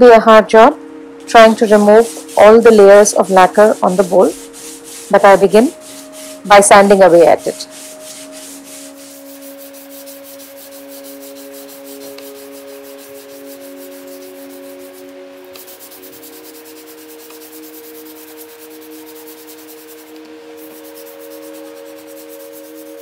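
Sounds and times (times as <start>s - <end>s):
soft musical drone: 0.0s - 23.0s
sandpaper scratching on wood: 1.4s - 23.0s.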